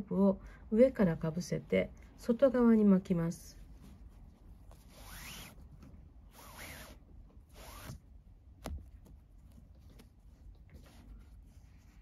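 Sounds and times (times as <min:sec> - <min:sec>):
cord rubbing rasping swishes: 0:04.0 - 0:08.1.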